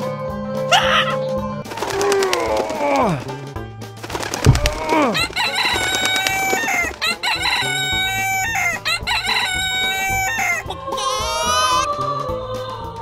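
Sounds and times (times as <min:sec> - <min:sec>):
rooster crowing: 0:04.8 - 0:11.9.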